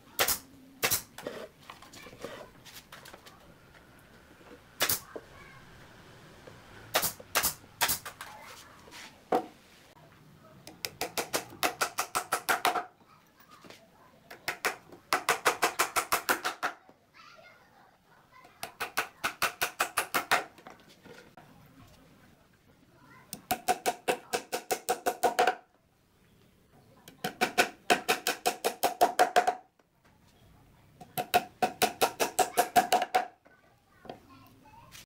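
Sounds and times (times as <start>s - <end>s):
hammer tapping nails: 10.7s - 12.9s, 14.3s - 16.8s, 18.6s - 20.5s, 23.4s - 25.6s, 27.2s - 29.6s, 31.0s - 33.3s.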